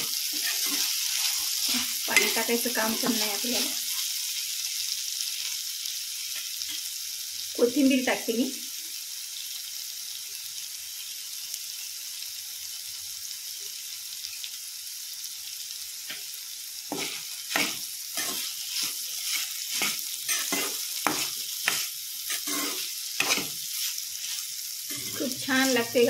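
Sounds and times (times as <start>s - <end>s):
metal spatula scraping a pan: 0.0s - 4.0s, 16.9s - 26.0s
vegetables sizzling in a pan: 0.0s - 26.0s.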